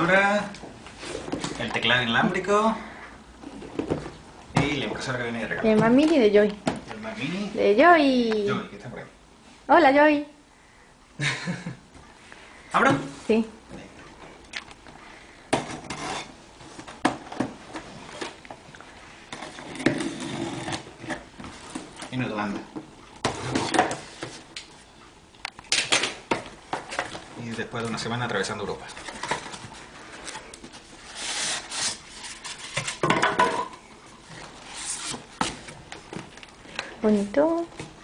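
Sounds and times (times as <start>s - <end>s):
cardboard rubbing and scraping: 19.4s - 21.2s, 34.4s - 35.7s.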